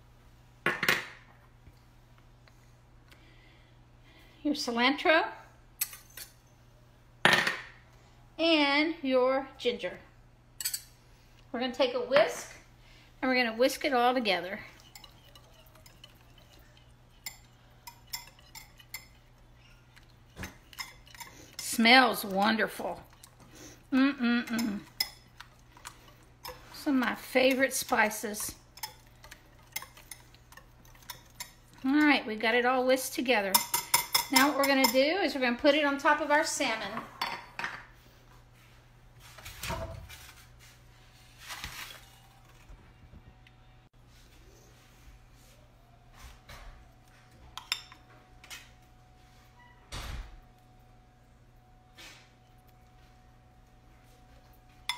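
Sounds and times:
whisk clinking against glass: 14.8 - 19.8.

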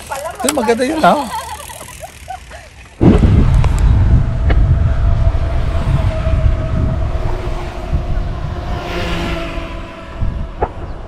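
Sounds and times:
bicycle whine: 0.0 - 11.0
wind rumble on microphone: 3.0 - 11.0.

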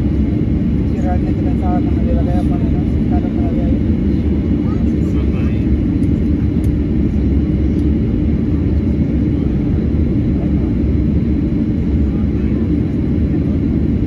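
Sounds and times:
airplane cabin low rumble: 0.0 - 14.0.

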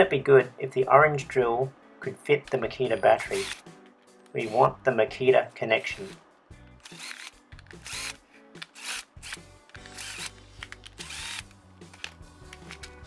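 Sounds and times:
cordless drill whining: 3.3 - 3.6, 6.8 - 12.2.

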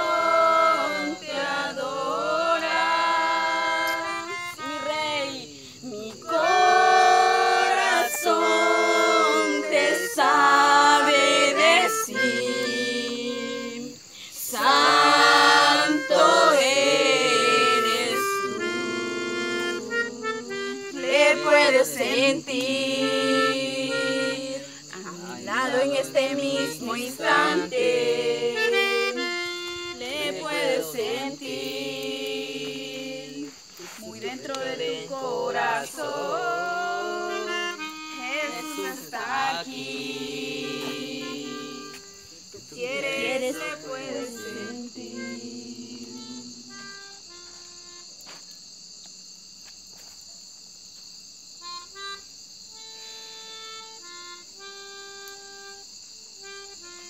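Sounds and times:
group singing worship song: 0.0 - 46.9
crickets chirping: 0.0 - 57.0
melodica melody: 2.8 - 5.4, 6.4 - 13.9, 14.7 - 24.6, 25.6 - 31.2, 36.7 - 42.2.

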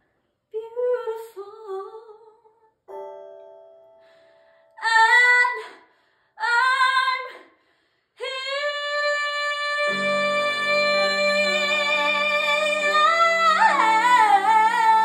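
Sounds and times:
woman singing: 0.5 - 2.6, 4.8 - 5.8, 6.4 - 7.5, 8.2 - 15.0
low musical accompaniment: 9.8 - 15.0.

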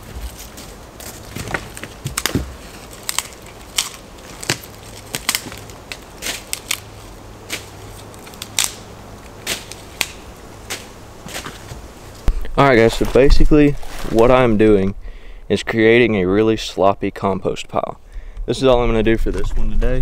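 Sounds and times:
dry sticks snapping: 0.3 - 12.3.

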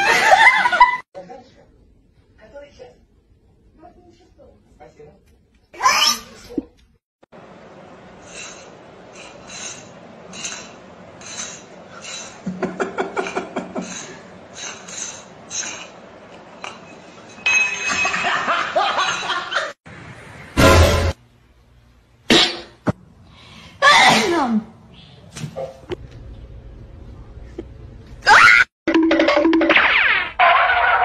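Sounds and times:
people laughing: 0.0 - 1.1, 12.4 - 14.2, 18.0 - 19.8
metal bowl clinking: 16.7 - 19.4.

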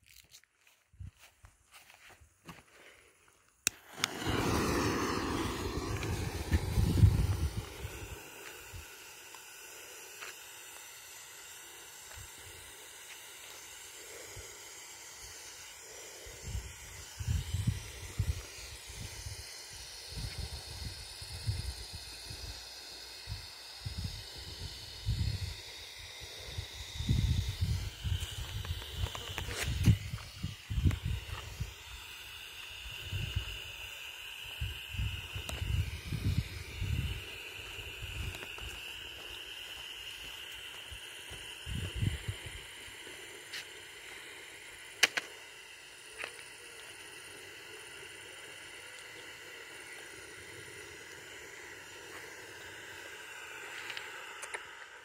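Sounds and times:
smoke stick hissing: 0.0 - 55.0
wind rumble on microphone: 4.1 - 8.8, 16.4 - 19.4, 26.5 - 31.7, 34.6 - 38.8, 41.6 - 42.7.

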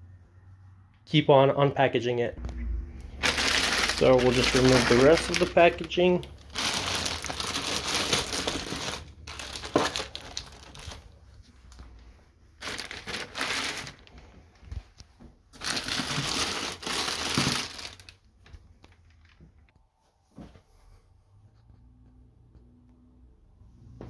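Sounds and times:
plastic bag crinkling: 3.2 - 11.9, 12.6 - 14.8, 15.5 - 19.4.

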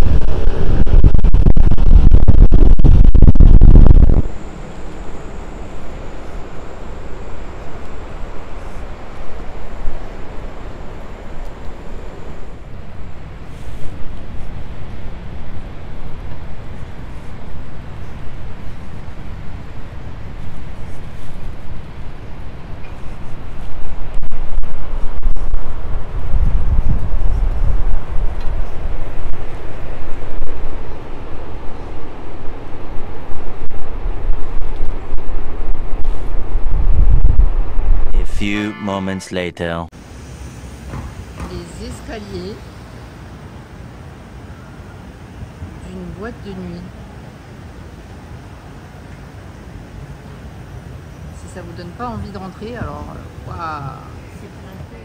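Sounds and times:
wind buffeting microphone: 0.0 - 38.4
ocean surf: 4.3 - 24.0.

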